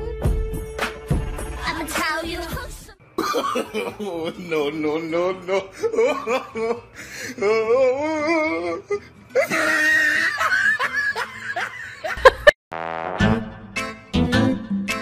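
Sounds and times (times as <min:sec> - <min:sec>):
music: 0:00.0 - 0:03.2, 0:12.2 - 0:15.0
person laughing hard: 0:09.4 - 0:12.6.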